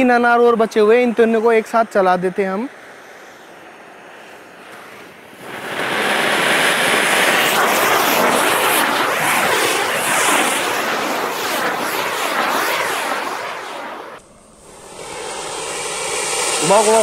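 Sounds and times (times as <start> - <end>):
firecracker fountain spraying sparks: 5.4 - 17.0.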